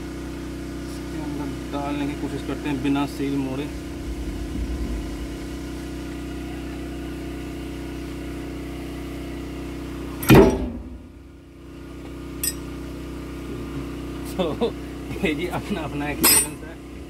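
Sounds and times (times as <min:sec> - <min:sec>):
steady machine hum: 0:01.2 - 0:08.9, 0:09.5 - 0:13.7
loud clunk: 0:03.7 - 0:06.8, 0:10.2 - 0:11.4.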